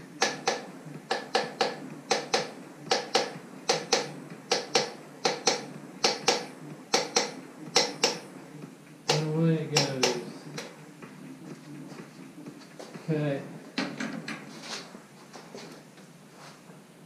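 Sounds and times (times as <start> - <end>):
small hammer tapping metal: 0.2 - 8.2, 9.1 - 10.7.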